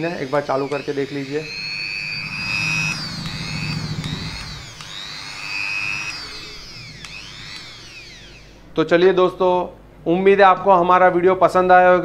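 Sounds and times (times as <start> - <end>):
rotary tool whining: 0.0 - 8.8.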